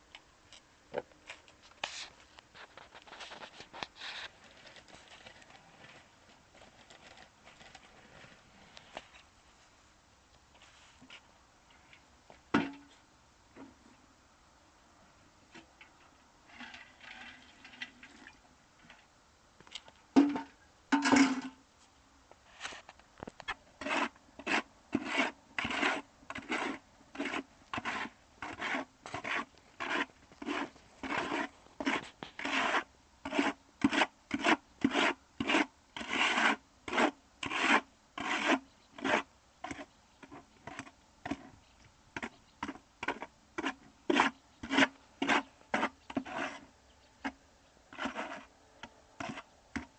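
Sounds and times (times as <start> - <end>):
hand tool scraping rough surface: 1.3 - 9.2, 16.5 - 18.0, 23.8 - 41.6, 42.2 - 49.9.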